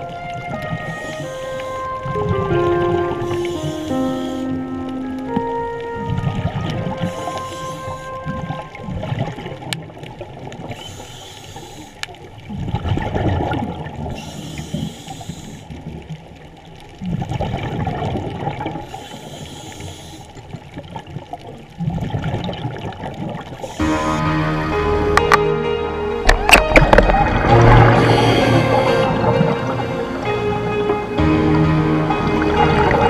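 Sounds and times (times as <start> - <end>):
music: 0.0 - 8.8, 23.7 - 33.0
underwater regulator bubbling: 0.0 - 16.2, 16.8 - 24.4, 26.2 - 30.3
faint clicks: 9.6 - 12.5.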